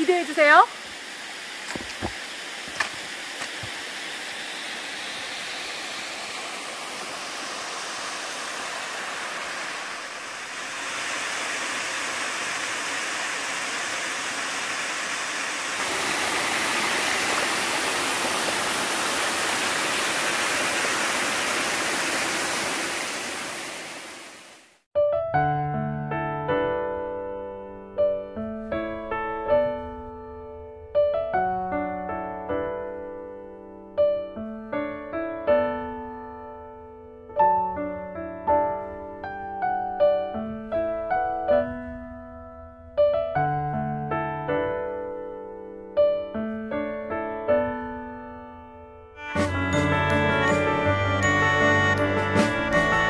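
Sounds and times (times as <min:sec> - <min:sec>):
stream rushing water: 0:00.8 - 0:24.8
piano music: 0:25.0 - 0:53.0.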